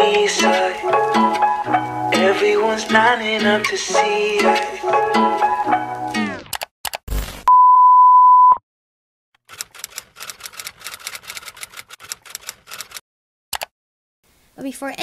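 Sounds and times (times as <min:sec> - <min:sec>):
steady beep tone: 0:07.5 - 0:08.6.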